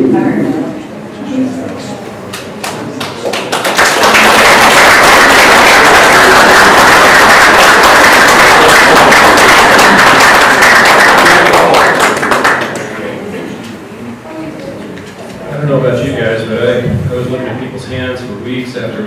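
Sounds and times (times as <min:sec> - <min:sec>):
audience applauding: 0:02.3 - 0:13.1.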